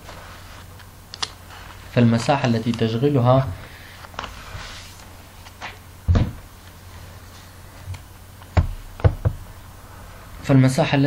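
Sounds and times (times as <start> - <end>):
dull thump: 6.1 - 6.4, 8.6 - 9.5.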